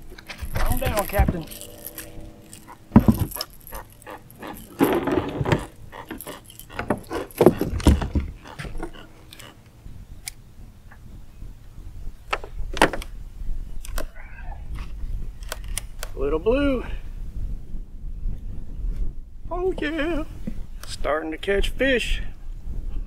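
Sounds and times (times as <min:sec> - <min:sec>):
rattling scuffle: 0:00.0 - 0:09.6
knocks and clatters on a boat: 0:04.7 - 0:09.5.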